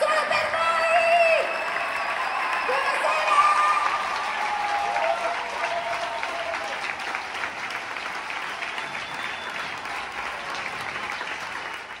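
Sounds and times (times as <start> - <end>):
crowd applauding: 0.0 - 12.0.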